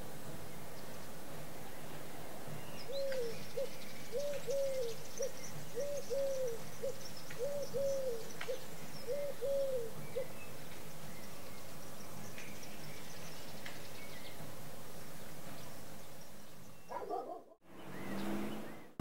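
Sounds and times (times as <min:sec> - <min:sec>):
small birds chirping: 0:00.4 - 0:19.0
dove cooing: 0:02.9 - 0:10.4.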